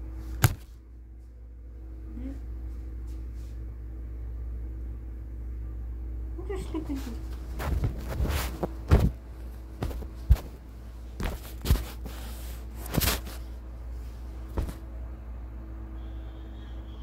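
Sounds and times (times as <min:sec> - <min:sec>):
steady low hum: 0:00.0 - 0:17.0
phone handling knocks and rustles: 0:09.8 - 0:10.5.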